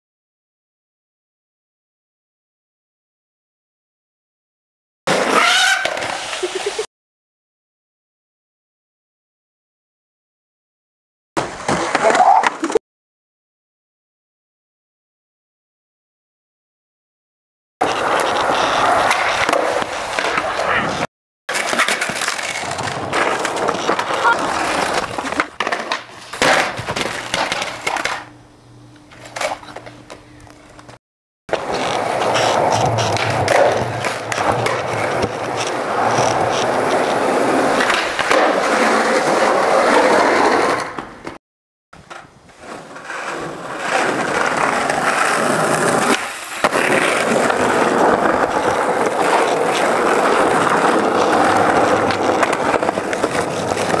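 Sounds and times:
skateboards rolling on asphalt: 0:05.1 - 0:06.9, 0:11.4 - 0:12.8, 0:17.8 - 0:28.4, 0:29.0 - 0:41.4, 0:42.0 - 0:54.0
skateboard knocks and clatter: 0:11.4 - 0:12.8, 0:17.8 - 0:28.3, 0:30.8 - 0:41.4, 0:42.0 - 0:54.0.

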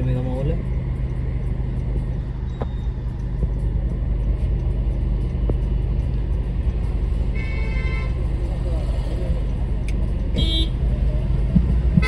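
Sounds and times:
car cabin hum and rumble: 0:00.0 - 0:12.0
car horn honking: 0:07.4 - 0:08.2, 0:10.4 - 0:10.8.

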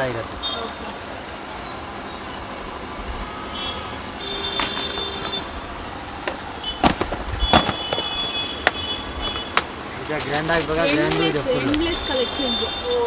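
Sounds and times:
market background din: 0:00.0 - 0:13.0
plastic boxes clacking: 0:06.2 - 0:11.8.

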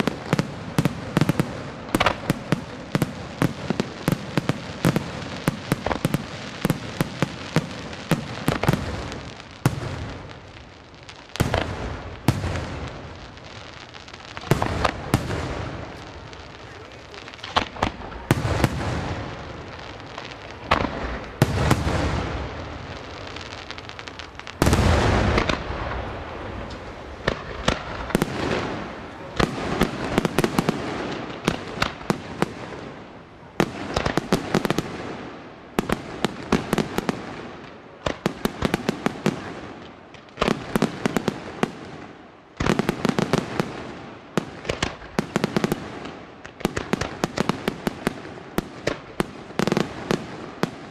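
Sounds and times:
firework shells booming: 0:00.0 - 0:10.6, 0:14.3 - 0:33.0
firework pops and crackling: 0:00.0 - 0:50.9.

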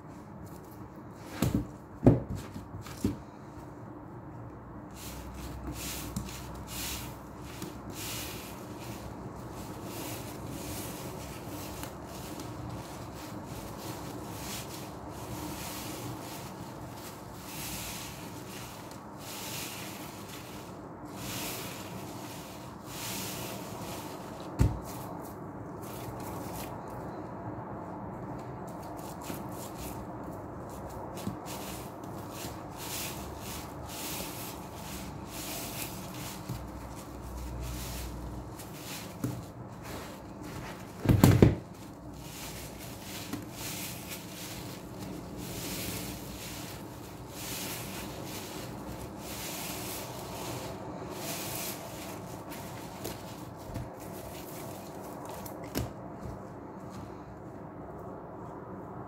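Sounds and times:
wet sponge squelches: 0:28.8 - 0:41.0, 0:41.6 - 0:55.6.

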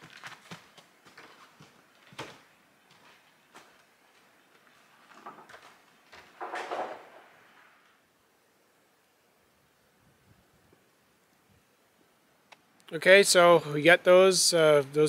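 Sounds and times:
wooden boards knocking and clattering: 0:05.2 - 0:07.5.

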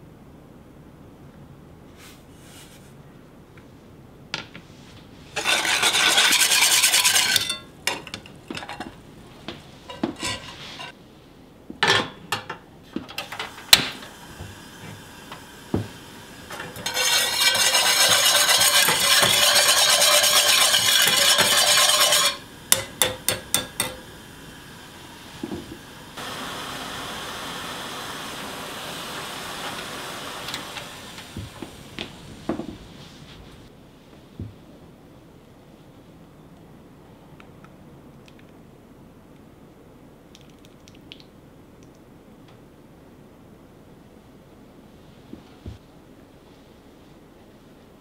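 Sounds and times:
utensil scraping metal saucepan: 0:05.3 - 0:09.0, 0:09.8 - 0:11.0, 0:16.5 - 0:24.0
gas burner hissing: 0:05.3 - 0:11.0, 0:13.0 - 0:33.7
taps on pan: 0:22.7 - 0:24.0.

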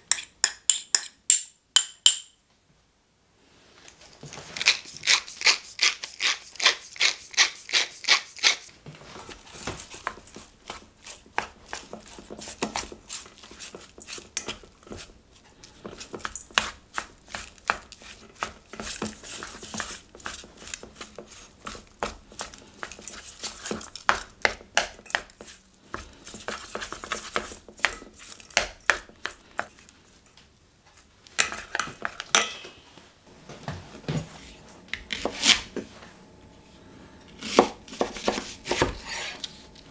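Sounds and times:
hands squishing meat in bowl: 0:09.3 - 0:29.9.

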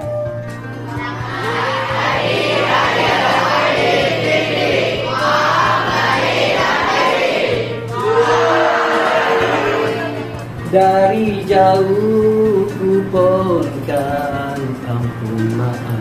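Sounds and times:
background music: 0:00.0 - 0:16.0
crowd of voices singing: 0:01.0 - 0:12.1.

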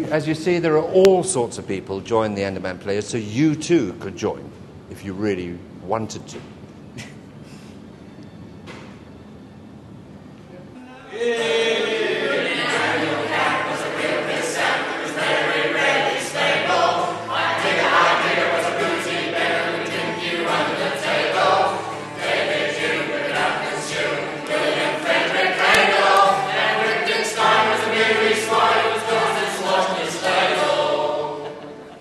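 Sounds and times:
group of voices singing: 0:11.1 - 0:32.0.

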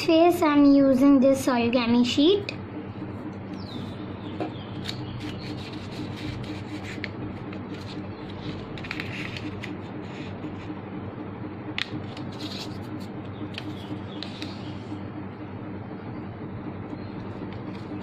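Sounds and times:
paper folding and rustling: 0:04.8 - 0:10.3, 0:12.0 - 0:12.8.

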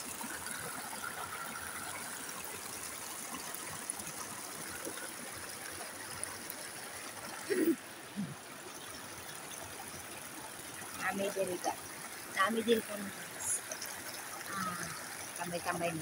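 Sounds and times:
creek water running over rocks: 0:00.0 - 0:16.0.

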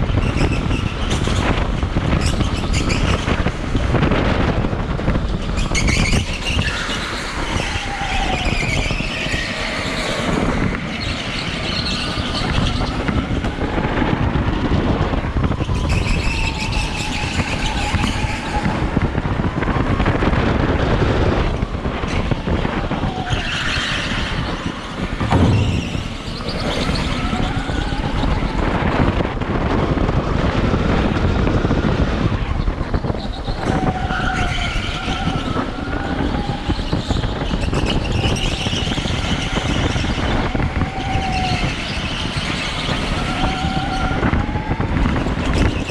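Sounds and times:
rumble over bumpy concrete: 0:00.0 - 0:45.9
thump: 0:25.2 - 0:27.2.

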